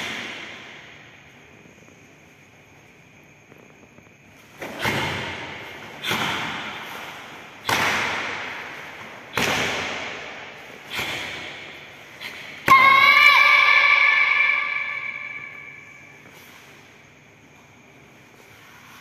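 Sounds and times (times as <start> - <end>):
sharp snaps echoing in hall: 0.0 - 3.1, 4.5 - 17.0
person shouting: 12.7 - 15.2.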